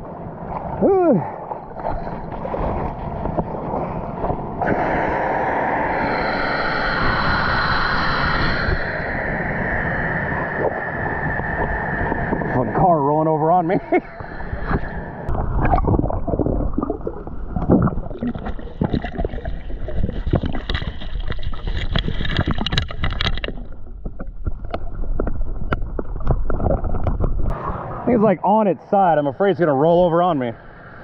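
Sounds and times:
high hiss: 4.7 - 12.6
diver's bubbles gurgling: 11.6 - 27.5.

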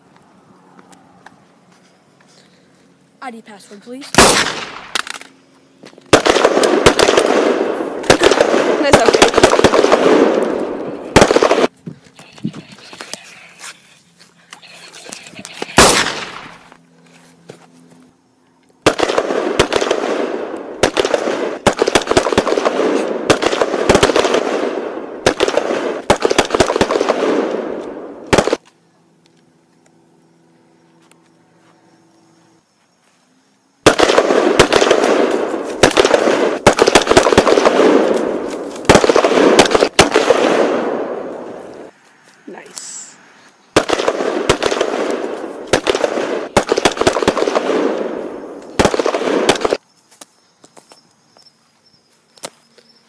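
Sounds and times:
automatic gunfire: 4.2 - 5.2, 6.1 - 11.7, 15.5 - 16.6, 18.8 - 28.6, 33.8 - 41.4, 43.8 - 49.8.

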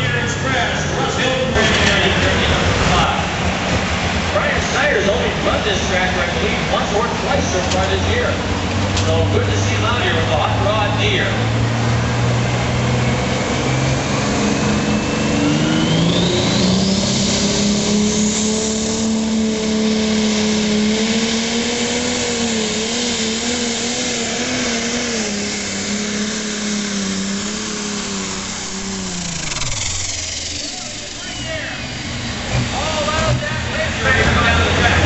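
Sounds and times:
diesel tractor engine under load: 0.0 - 35.0
high whine: 0.0 - 35.0.

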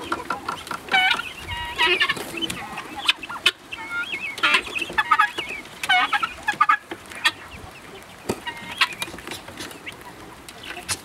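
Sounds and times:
guineafowl rattling chatter: 0.0 - 11.0.

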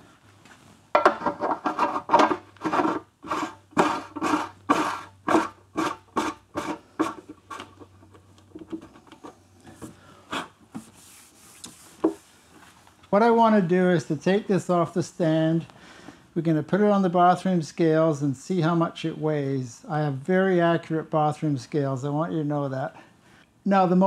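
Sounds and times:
metal cap threads rasping: 1.3 - 8.0.

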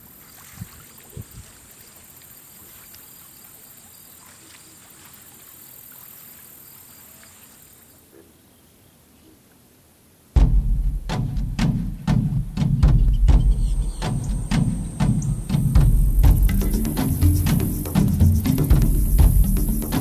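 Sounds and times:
high-pitched insect chorus: 0.0 - 8.0, 13.2 - 20.0.

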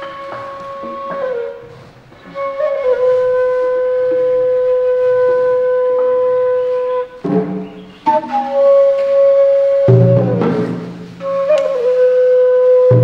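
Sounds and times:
flute long held note: 0.0 - 13.0.

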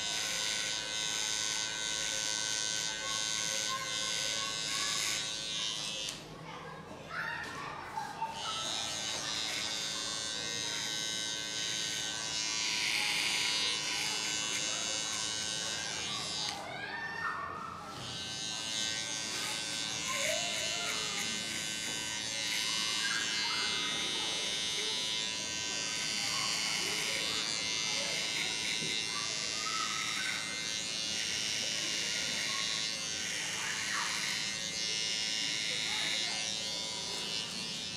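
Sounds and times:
electric hair trimmer buzzing: 0.0 - 6.3, 8.1 - 17.0, 17.7 - 37.9.

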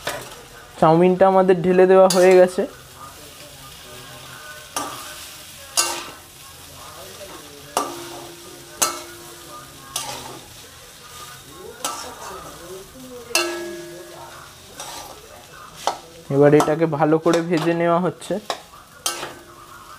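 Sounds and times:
frying sizzle: 0.0 - 19.9
metal spatula clanking on pan: 2.1 - 2.6, 4.8 - 5.1, 5.7 - 6.2, 7.3 - 10.5, 11.8 - 12.4, 13.2 - 15.2, 15.8 - 17.8, 18.4 - 19.7.

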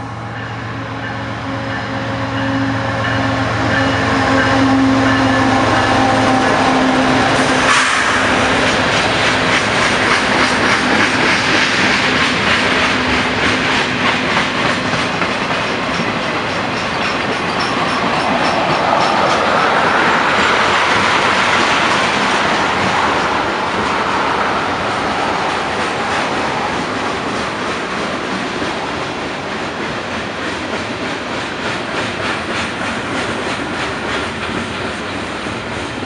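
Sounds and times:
locomotive engine hum: 0.0 - 36.0
train cars clickety-clack on rails: 0.0 - 36.0.

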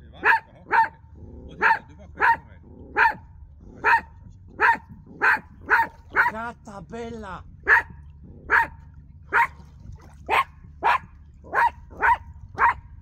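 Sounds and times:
dog barking: 0.2 - 1.0, 1.6 - 6.4, 7.7 - 9.6, 10.3 - 12.9.

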